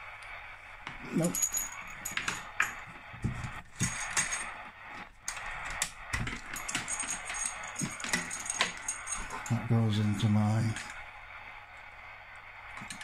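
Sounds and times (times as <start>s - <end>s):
metallic clinks of cable connectors: 3.5s - 4.6s, 5.3s - 9.7s.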